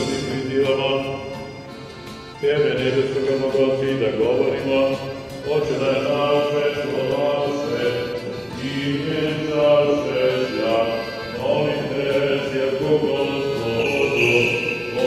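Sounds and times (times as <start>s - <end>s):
voices singing a slow hymn: 6.8s - 15.0s.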